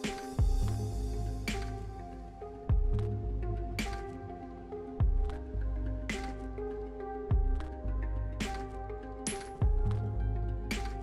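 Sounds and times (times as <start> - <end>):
background music with held chords: 0.0 - 11.0
sharp percussive click: 1.4 - 2.0.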